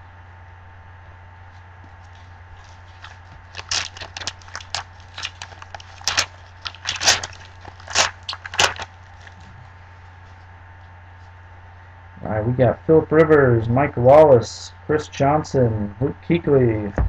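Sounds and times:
foil wrapper crinkling and tearing: 2.6 - 9.5.

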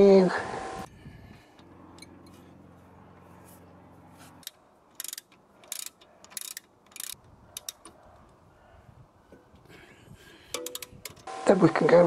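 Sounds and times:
socket ratchet clicking: 4.4 - 8.0, 10.5 - 11.3.

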